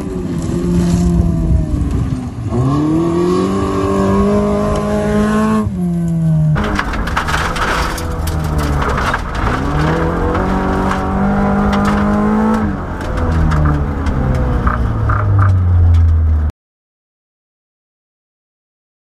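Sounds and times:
rally car engine revving: 0.0 - 16.5
gravel knocking underneath: 6.5 - 16.5.

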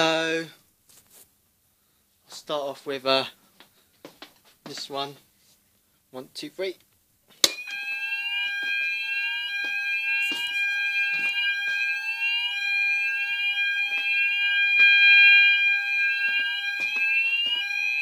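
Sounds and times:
fire alarm continuous tone: 7.4 - 18.0
fire alarm rising whoop: 7.5 - 18.0.

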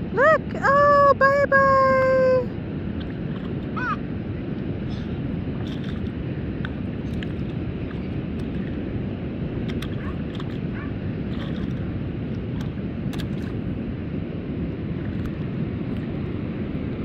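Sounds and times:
low outdoor rumble: 0.0 - 17.0
stick splashing in shallow water: 5.6 - 8.8, 9.6 - 13.6.

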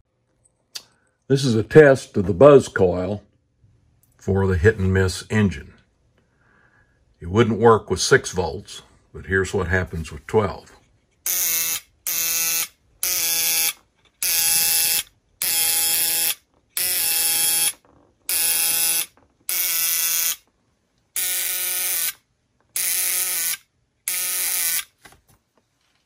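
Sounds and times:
buzz coil buzzing: 11.3 - 20.4.

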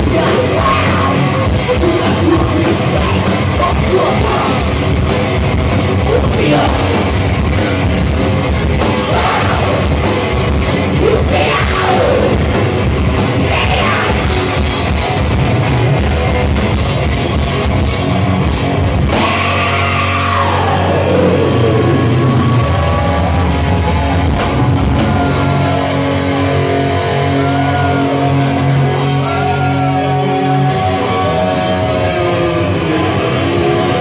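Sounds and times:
drum kit: 0.0 - 26.9
electric guitars: 0.0 - 34.0.

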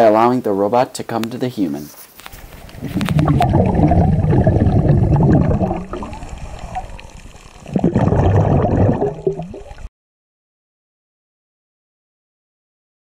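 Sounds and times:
underwater bubbles gurgling: 2.3 - 9.9.

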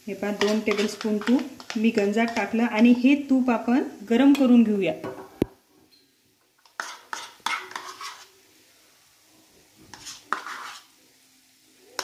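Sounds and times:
spoon scraping a metal pot: 0.3 - 2.5, 6.6 - 8.3, 9.9 - 10.9.

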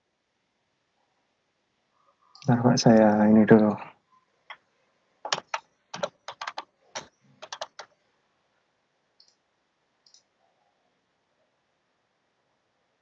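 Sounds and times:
computer keyboard typing: 5.3 - 7.9.

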